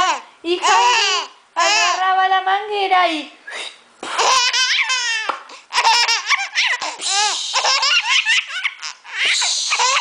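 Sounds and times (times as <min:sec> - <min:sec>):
baby laughing: 0:00.0 - 0:02.0, 0:04.0 - 0:10.0.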